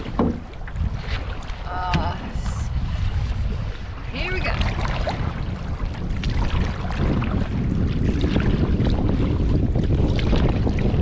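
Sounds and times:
water lapping against canoe: 0.0 - 11.0
wind buffeting microphone: 0.0 - 11.0.

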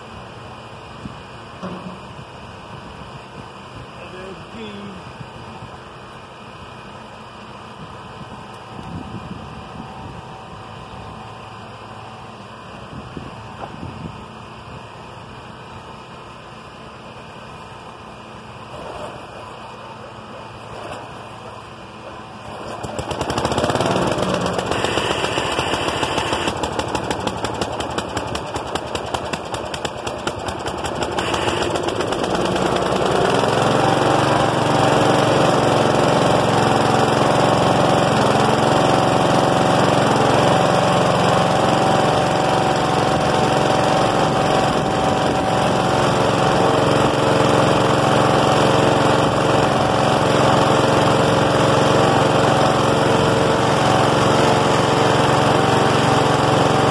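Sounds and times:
engine running with irregular popping: 1.0 - 3.0, 18.6 - 56.9
mower engine pull-started: 18.5 - 56.9.

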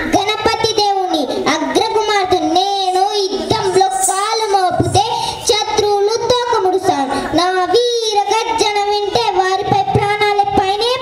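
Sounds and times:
girl singing into a microphone: 0.0 - 11.0.

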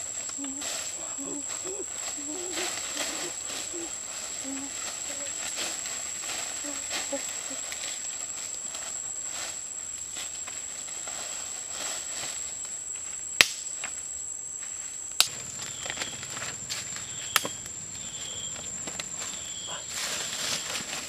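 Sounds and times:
high-pitched insect drone: 0.0 - 8.2, 15.3 - 21.0
faint rustling: 0.1 - 9.6, 15.3 - 21.0.

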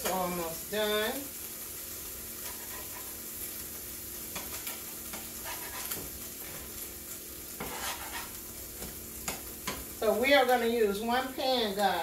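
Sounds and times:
food sizzling in a frying pan: 0.0 - 12.0
spatula scraping and tapping pan: 2.4 - 3.2, 4.3 - 6.8, 7.5 - 10.6.

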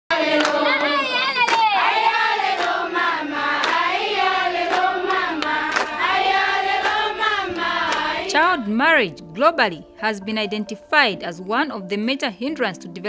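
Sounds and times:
children singing in unison: 0.1 - 8.3
hand clapping: 0.4 - 2.9, 3.6 - 3.9, 4.6 - 6.0, 6.8 - 7.1, 7.9 - 8.1.

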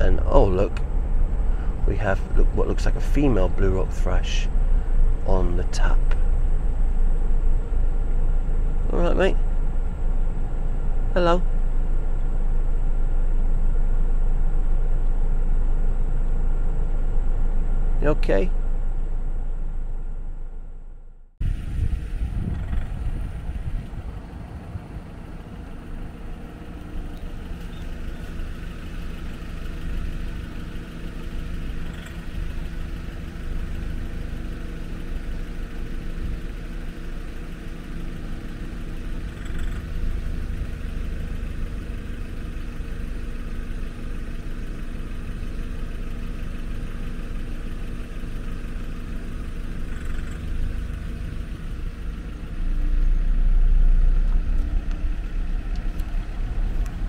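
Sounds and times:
low rumble: 0.0 - 37.5, 49.3 - 57.0
car engine idling: 0.0 - 57.0.

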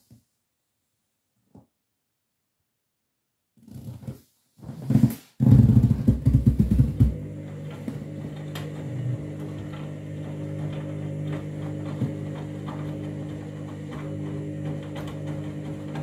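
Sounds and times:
washing machine motor rumbling: 5.4 - 16.0.

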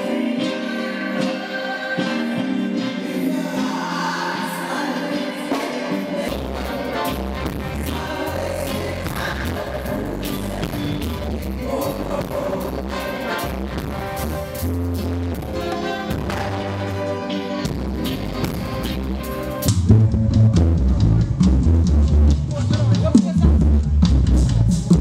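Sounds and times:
women's backing vocals: 0.0 - 13.6
reggae band playing: 0.0 - 25.0
deep bass line: 6.3 - 25.0.

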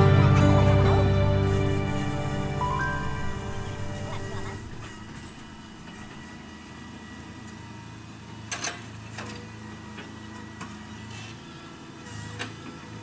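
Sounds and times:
excavator diesel engine running: 0.0 - 6.5.

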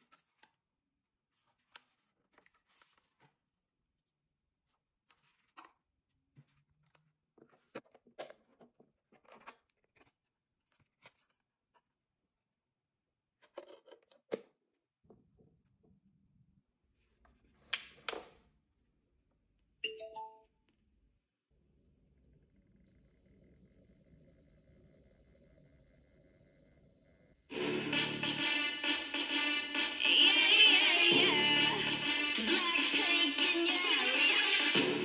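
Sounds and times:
paper rustling and scraping: 0.0 - 0.5, 1.3 - 3.6, 4.7 - 6.8, 7.4 - 11.8.

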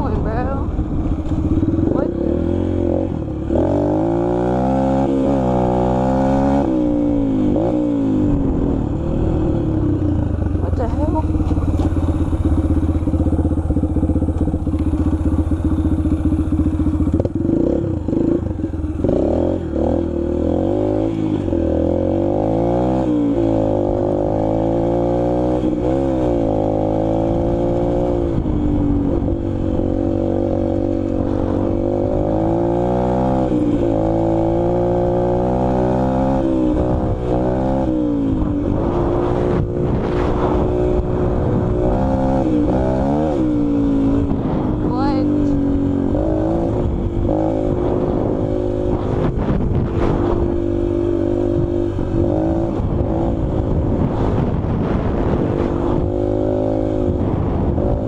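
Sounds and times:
dirt bike engine revving: 0.0 - 58.0.

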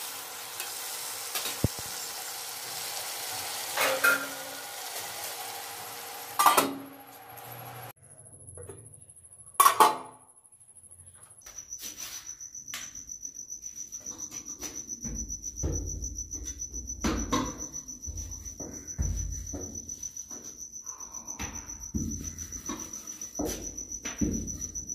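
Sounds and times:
metal lid clanking: 3.8 - 4.6, 6.4 - 6.9
cricket trilling: 8.0 - 24.9.

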